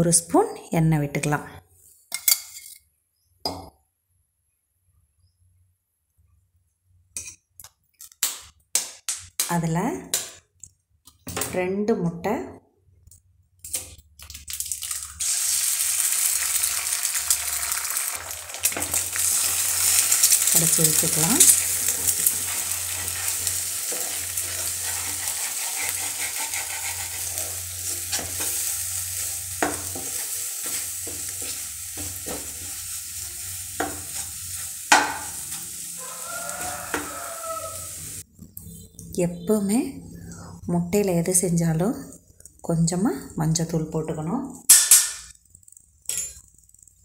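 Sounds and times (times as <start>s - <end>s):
eggs sizzling in oil: 13.7s - 38.3s
spatula knocking on pan: 34.9s - 35.3s.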